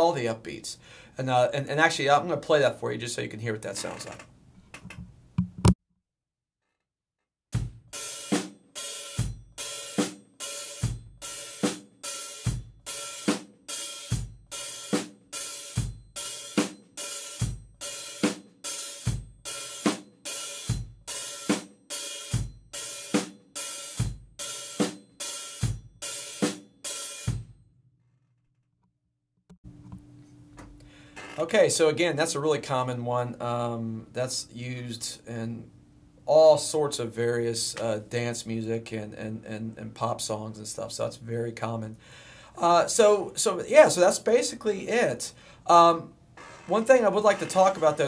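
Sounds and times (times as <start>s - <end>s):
drum kit beat: 7.6s - 27.6s, 46.4s - 48.0s
open hi-hat bark: 8.0s - 27.4s.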